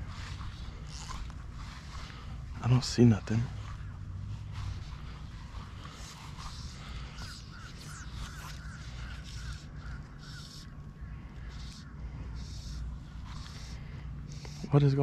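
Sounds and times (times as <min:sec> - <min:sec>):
steady low rumble: 0:00.0 - 0:15.0
bird calling short repeated notes: 0:06.4 - 0:14.6
high bird chirps: 0:06.9 - 0:10.8.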